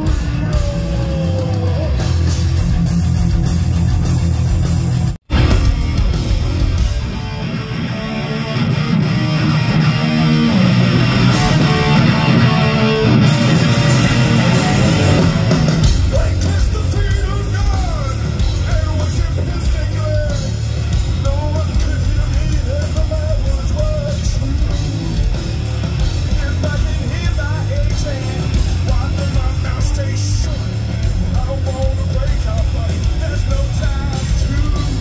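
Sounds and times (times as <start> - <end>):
person singing: 0.0 - 2.3, 14.2 - 20.6, 26.2 - 35.0
live rock band playing: 0.0 - 35.0.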